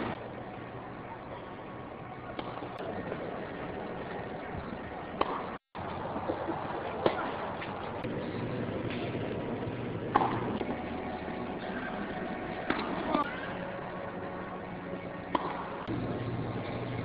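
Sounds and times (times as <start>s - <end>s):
tennis racquet hitting ball: 5.2s - 5.4s, 15.2s - 15.7s.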